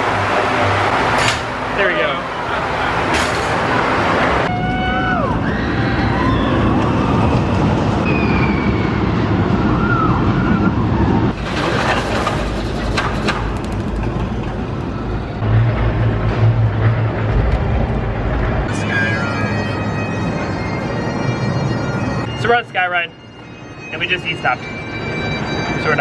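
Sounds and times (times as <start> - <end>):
gondola rumbling along cable: 0.0 - 22.4
short falling squeals: 8.0 - 10.8.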